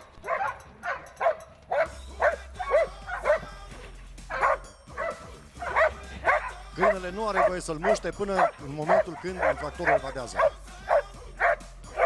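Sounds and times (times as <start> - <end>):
dog barking: 0.2 - 3.5, 4.3 - 12.0.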